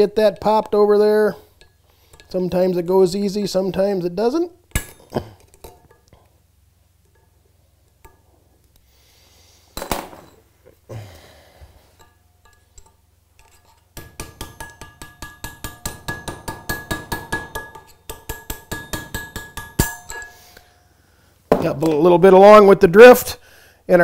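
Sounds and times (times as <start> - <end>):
hammer tapping metal drift: 12.0 - 20.8.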